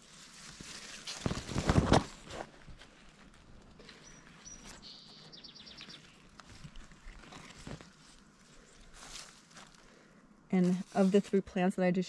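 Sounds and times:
loud rustling crunch: 0:00.0 - 0:10.0
songbird singing: 0:03.8 - 0:06.5.

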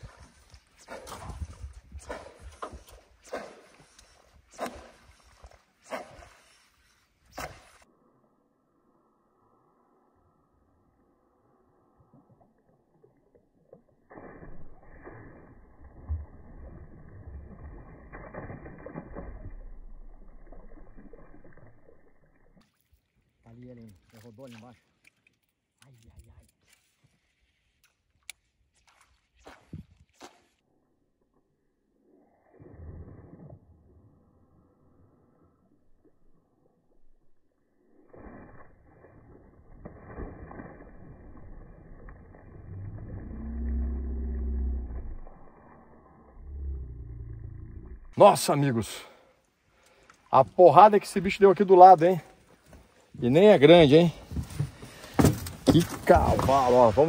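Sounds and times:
water splashing from fish: 0:00.0 - 0:07.9, 0:11.8 - 0:25.4, 0:37.9 - 0:46.6, 0:53.7 - 0:57.0
low rumble: 0:40.8 - 0:48.2
low droning hum: 0:41.4 - 0:48.2.

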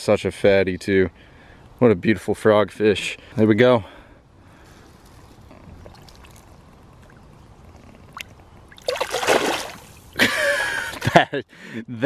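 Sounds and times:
fish splashing in shallow water: 0:05.8 - 0:07.4, 0:08.0 - 0:10.2.

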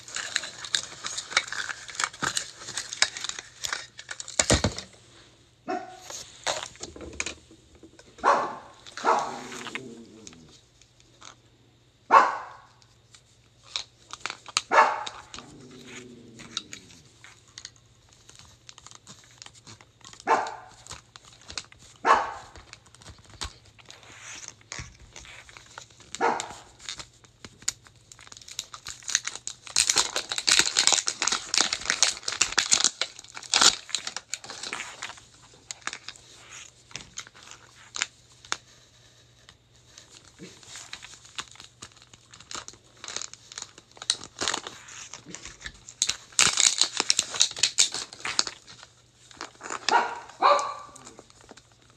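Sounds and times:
plastic wrap crinkling and tearing: 0:00.0 - 0:05.0, 0:06.0 - 0:07.3, 0:07.9 - 0:11.4, 0:12.6 - 0:51.9
small dog barking: 0:05.7 - 0:06.0, 0:08.2 - 0:09.5, 0:12.1 - 0:12.7, 0:14.7 - 0:15.1, 0:20.2 - 0:20.7, 0:22.0 - 0:22.5, 0:26.2 - 0:26.6, 0:49.9 - 0:51.1.

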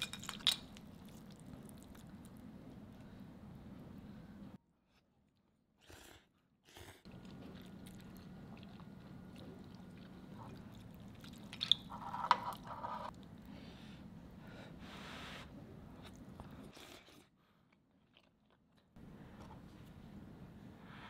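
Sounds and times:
chopsticks and spoon in bowl: 0:00.0 - 0:02.2, 0:07.1 - 0:13.1
wet noodle sounds: 0:07.1 - 0:13.5.

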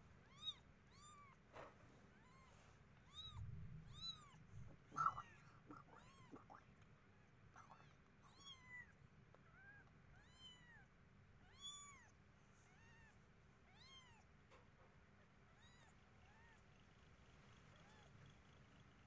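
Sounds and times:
kittens mewing faintly: 0:02.0 - 0:10.9.

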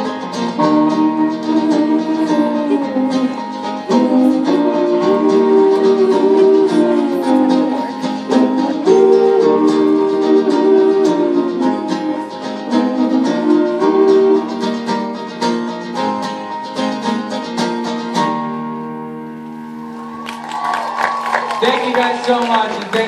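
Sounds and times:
strummed acoustic guitar: 0:00.0 - 0:20.0
piano: 0:00.0 - 0:21.6
man singing: 0:00.6 - 0:14.8.

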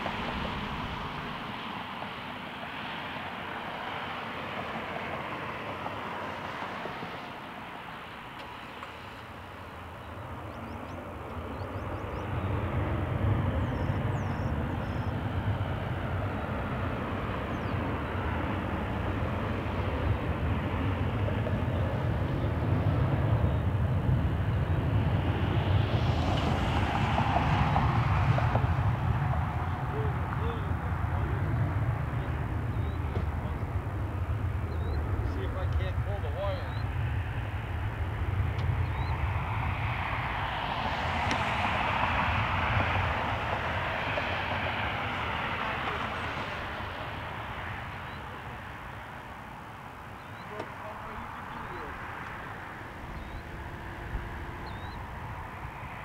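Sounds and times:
jet engines rumbling: 0:00.0 - 0:56.0.

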